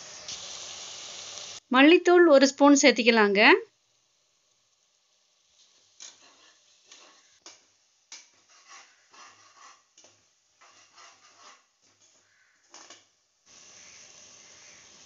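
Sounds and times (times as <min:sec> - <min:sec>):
ladle scraping metal pot: 0:10.6 - 0:11.7.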